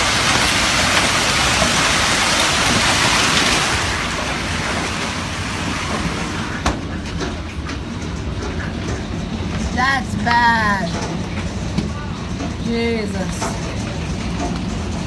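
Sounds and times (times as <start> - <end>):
hail and rain pelting: 0.0 - 15.0.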